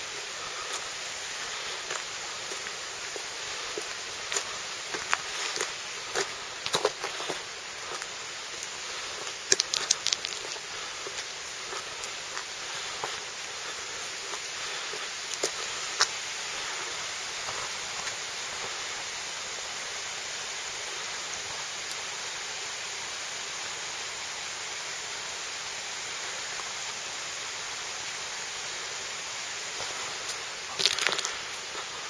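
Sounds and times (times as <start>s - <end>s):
sharp clicks: 9.5s - 10.6s.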